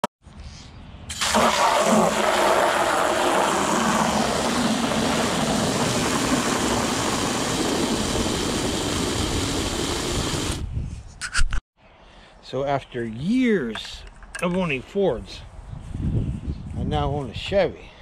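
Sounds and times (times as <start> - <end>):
hose spraying into bucket: 1.1 - 10.6.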